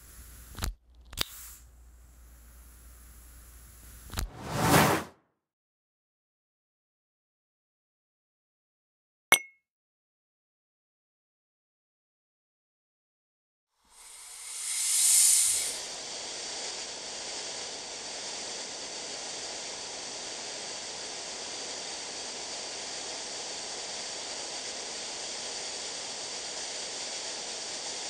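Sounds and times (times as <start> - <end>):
airy hiss: 13.8 - 28.0.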